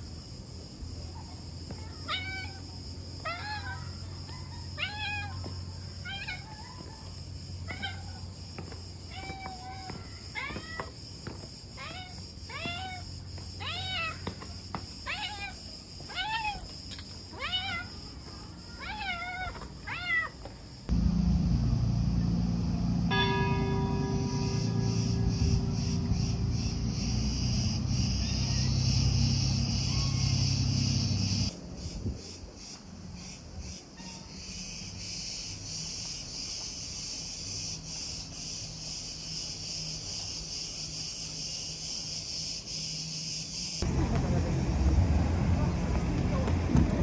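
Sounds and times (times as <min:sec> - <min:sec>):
high buzz of insects: 0:00.0 - 0:43.9
cat meowing: 0:17.4 - 0:17.9, 0:18.8 - 0:20.4
motor engine humming: 0:20.9 - 0:31.5
insects buzzing in pulses: 0:24.5 - 0:31.6.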